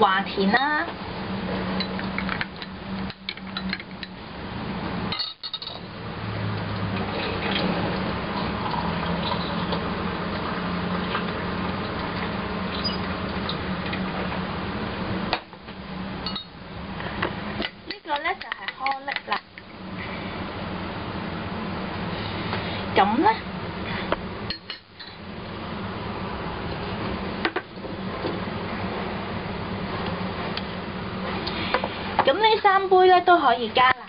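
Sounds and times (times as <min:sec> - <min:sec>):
spoon clinking against glass: 0:05.1 - 0:05.9, 0:16.3 - 0:16.5.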